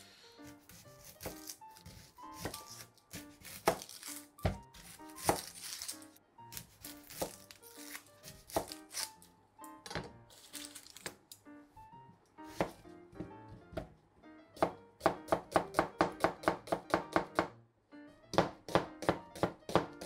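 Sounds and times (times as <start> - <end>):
background music: 0.0 - 20.0
knife chopping on cutting board: 0.4 - 5.9, 6.5 - 9.1, 12.5 - 14.0, 14.6 - 17.5, 18.3 - 20.0.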